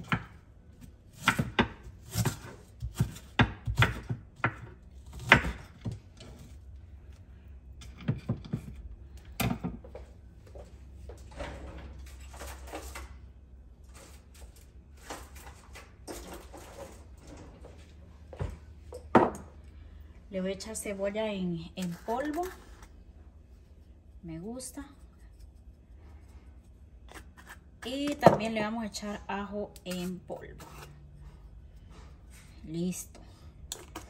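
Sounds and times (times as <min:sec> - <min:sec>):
knife chopping on cutting board: 0:01.1 - 0:06.0.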